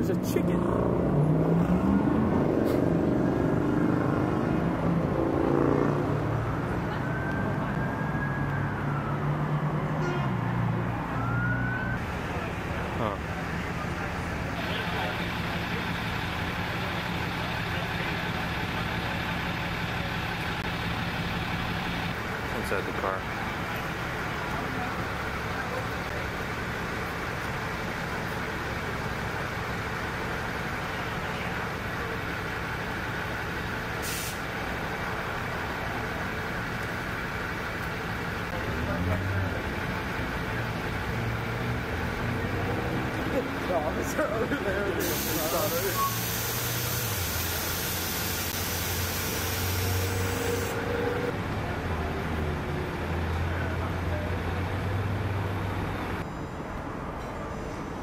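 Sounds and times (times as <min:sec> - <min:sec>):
idling vehicles hum: 0:00.0 - 0:58.0
street background noise: 0:00.0 - 0:58.0
traffic noise: 0:00.0 - 0:58.0
brief hiss: 0:34.0 - 0:34.5, 0:45.0 - 0:50.8.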